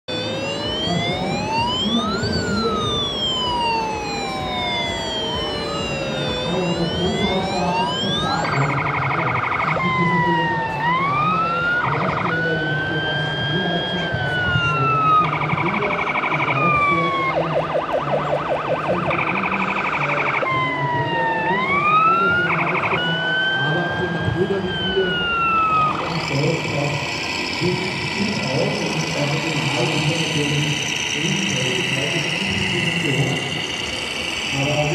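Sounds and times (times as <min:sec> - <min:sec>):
electronic wail siren: 0:00.0 - 0:34.9
fainter siren tone: 0:00.0 - 0:34.9.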